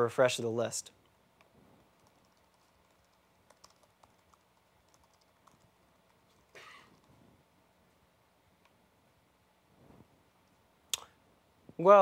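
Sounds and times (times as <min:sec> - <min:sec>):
typing on computer keyboard: 0:01.9 - 0:07.1.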